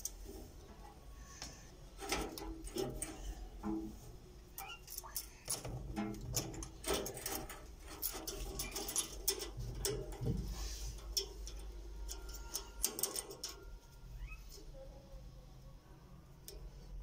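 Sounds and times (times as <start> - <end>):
metallic clicks and clinks: 4.6 - 13.9.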